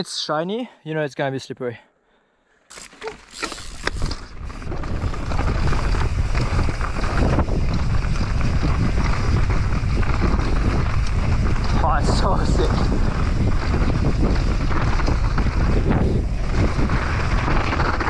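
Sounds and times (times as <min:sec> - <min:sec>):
bike tyres rolling over dirt: 0:02.7 - 0:18.0
wind buffeting microphone: 0:03.6 - 0:18.0.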